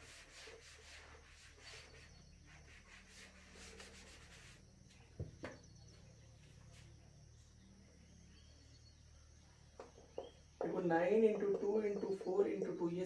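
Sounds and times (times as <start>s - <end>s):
duster rubbing on whiteboard: 0.0s - 4.7s.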